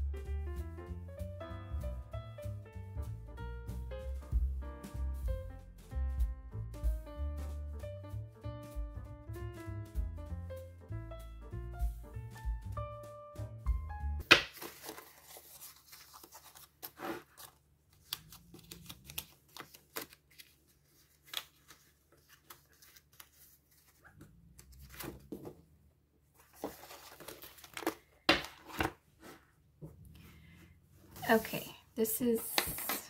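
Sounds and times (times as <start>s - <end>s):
paper pages rustling and turning: 14.2s - 25.7s, 26.3s - 29.5s, 32.6s - 33.0s.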